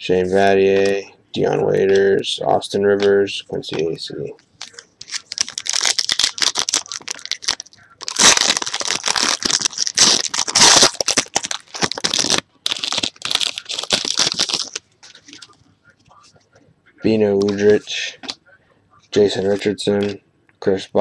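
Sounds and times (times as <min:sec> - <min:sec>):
wrapper tearing and crinkling: 0:04.6 - 0:15.4.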